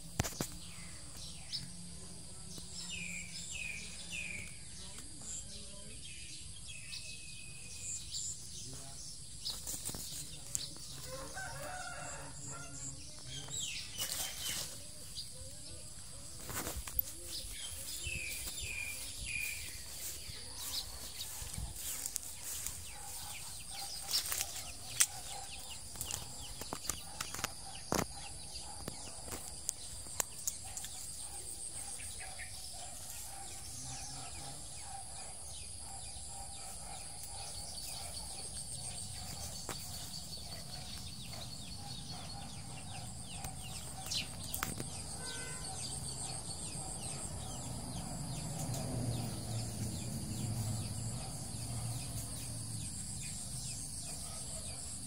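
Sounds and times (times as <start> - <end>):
rustles: 7.7 - 28.1.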